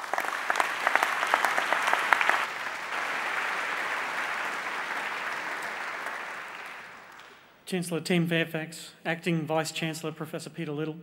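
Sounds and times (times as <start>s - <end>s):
large audience applauding: 0.0s - 7.4s
sharp individual claps: 0.0s - 7.5s.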